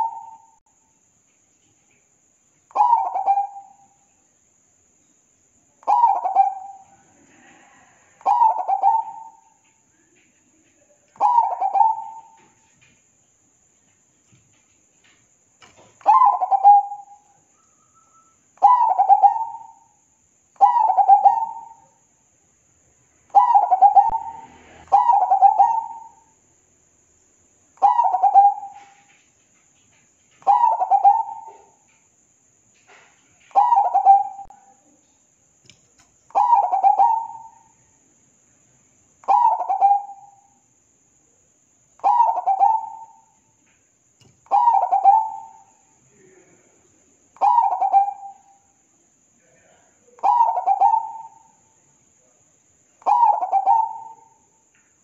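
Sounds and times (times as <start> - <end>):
dove cooing: 0.0 - 0.6, 2.7 - 3.8, 5.8 - 9.5, 11.2 - 12.5, 16.0 - 17.2, 18.6 - 19.8, 20.6 - 21.8, 23.3 - 26.2, 27.8 - 29.1, 30.4 - 31.8, 33.5 - 34.7, 36.3 - 37.6, 39.2 - 40.4, 42.0 - 43.3, 44.5 - 45.7, 47.4 - 48.5, 50.2 - 51.5, 53.0 - 54.4.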